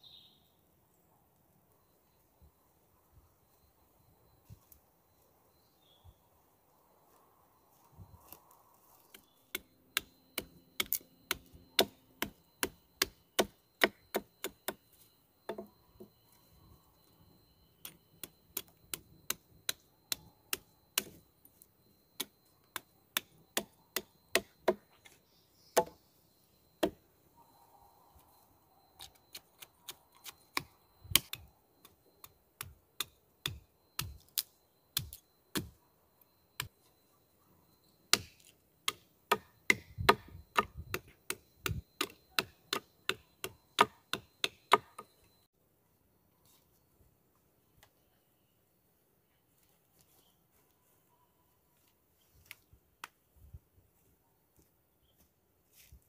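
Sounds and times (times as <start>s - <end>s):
tool chopping wood: 9.5s - 14.8s, 23.2s - 24.8s, 25.8s - 26.0s, 38.1s - 45.1s.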